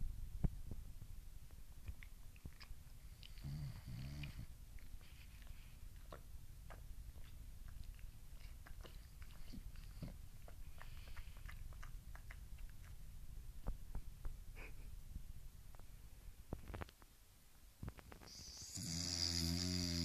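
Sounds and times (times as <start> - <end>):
dog smacking its lips: 4.2 - 14.4.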